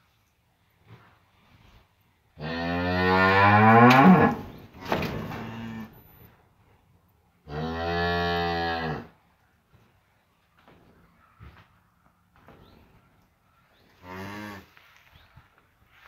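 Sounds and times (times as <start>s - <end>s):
cow mooing: 2.4s - 4.4s.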